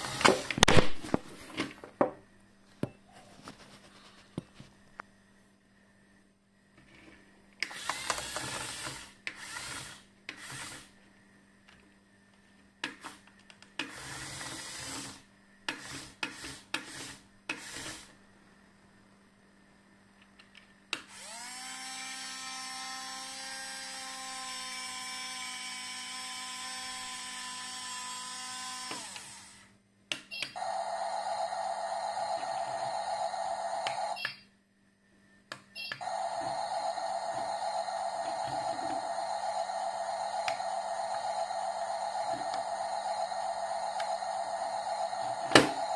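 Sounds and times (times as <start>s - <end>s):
small electric motors whirring: 7.7s - 10.9s, 21.1s - 29.7s, 30.6s - 34.2s, 36.0s - 45.9s.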